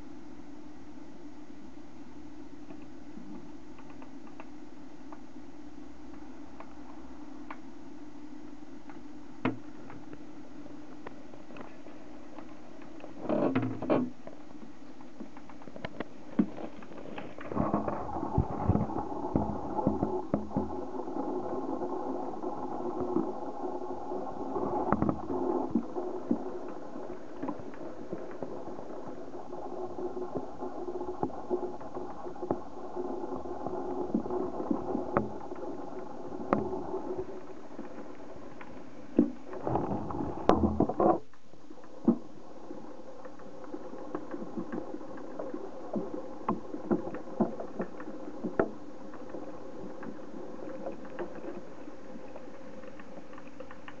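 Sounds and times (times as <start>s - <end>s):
steady low hum: 0.0s - 54.0s
rustling and clatter: 15.0s - 20.8s.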